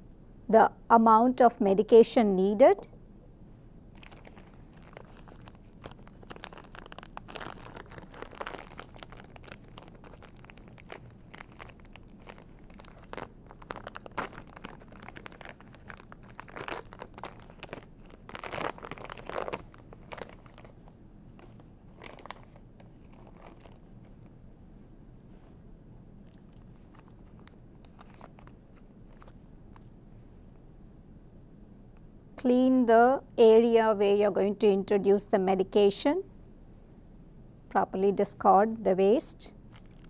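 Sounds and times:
plastic wrappers crinkling and tearing: 3.9s - 24.3s, 26.3s - 29.9s, 39.6s - 40.0s.

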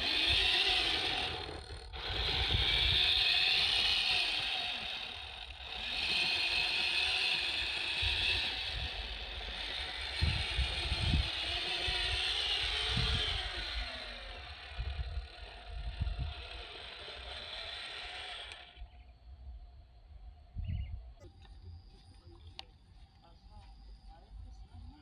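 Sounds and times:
electric motor whining: 0.0s - 19.2s.

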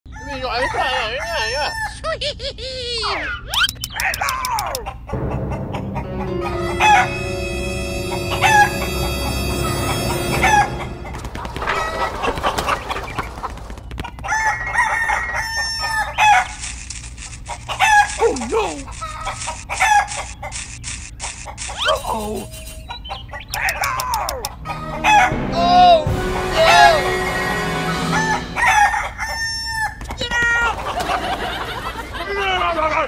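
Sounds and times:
rooster crowing: 0.1s - 2.0s, 14.2s - 16.6s, 24.5s - 25.5s, 26.4s - 30.0s
chickens clucking: 3.1s - 7.5s, 8.1s - 25.5s.

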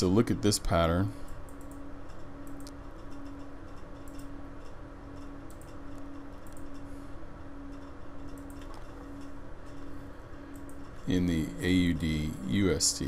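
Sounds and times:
low electrical hum: 0.0s - 13.0s
computer mouse clicks: 1.3s - 1.8s, 2.4s - 4.3s, 5.2s - 6.9s, 7.7s - 9.8s, 10.5s - 10.9s.

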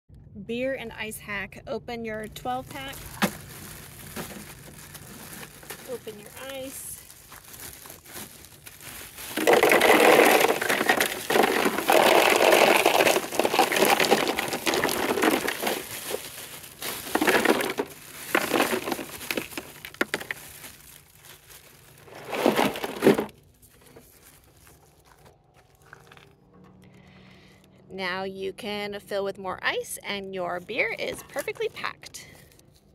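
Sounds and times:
plastic bag crinkling: 2.2s - 27.4s, 30.7s - 32.9s
ice cubes tumbling into cooler: 2.7s - 24.7s.

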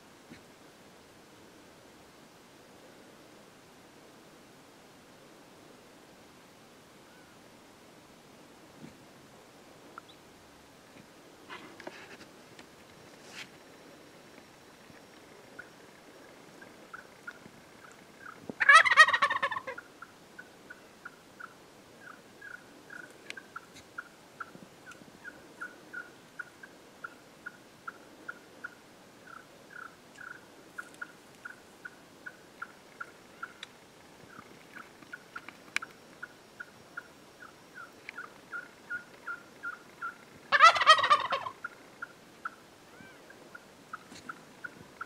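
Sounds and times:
turkey gobbling: 15.5s - 15.8s, 16.5s - 33.6s, 34.2s - 35.5s, 36.2s - 44.8s.

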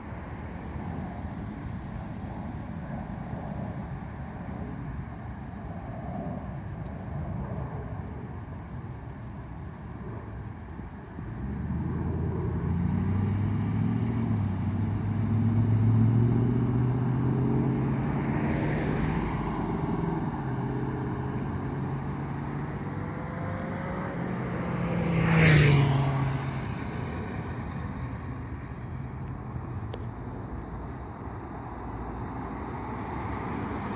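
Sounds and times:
vehicle passing with tyre noise: 0.0s - 33.9s
cars accelerating: 11.4s - 27.6s.

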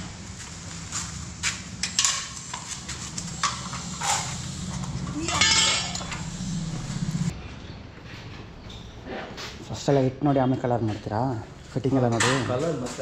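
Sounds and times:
steady low hum: 0.0s - 8.1s.

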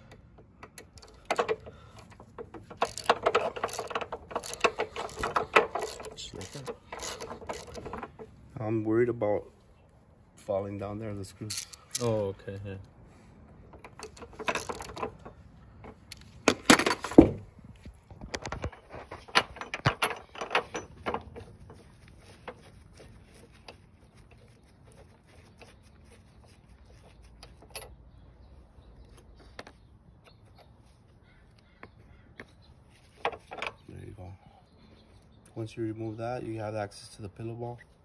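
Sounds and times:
hand tools clinking on metal: 2.6s - 8.2s.

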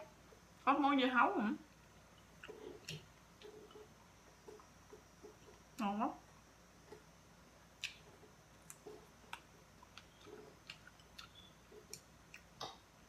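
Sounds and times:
soft chewing: 1.6s - 5.8s, 6.8s - 12.9s.

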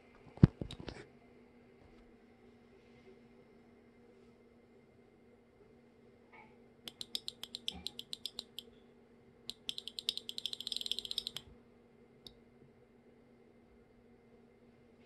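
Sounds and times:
relays clicking: 9.5s - 11.4s.

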